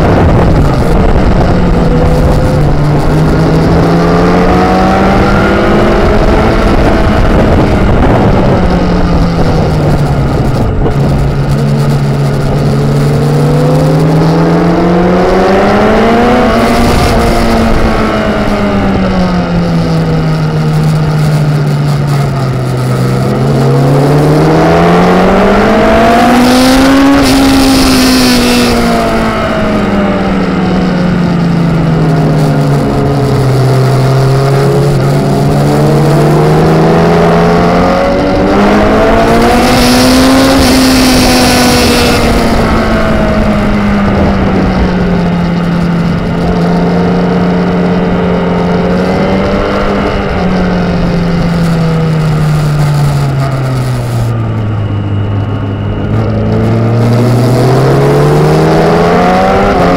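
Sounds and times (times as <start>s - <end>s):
racing motorcycle engine: 0.0s - 59.9s
wind rushing over microphone: 0.0s - 59.9s.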